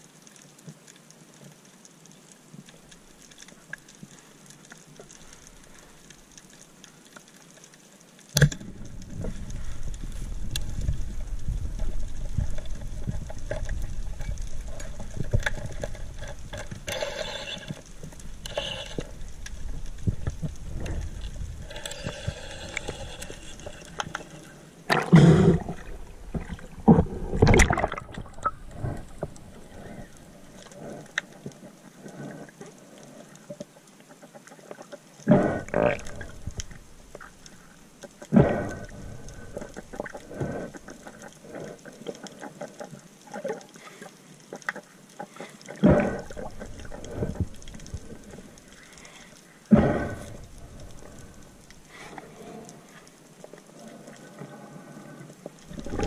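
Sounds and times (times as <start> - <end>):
faint underwater hiss: 0.0 - 56.0
water rushing over camera: 0.0 - 56.0
underwater clicks: 0.2 - 56.0
underwater gurgling bursts: 8.4 - 31.2, 35.3 - 36.7, 45.7 - 48.6, 49.7 - 51.6, 55.6 - 56.0.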